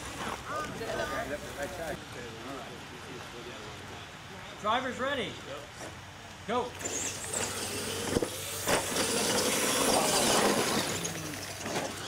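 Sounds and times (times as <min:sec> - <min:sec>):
toy truck motors and tyres hissing: 0:06.7 - 0:12.0.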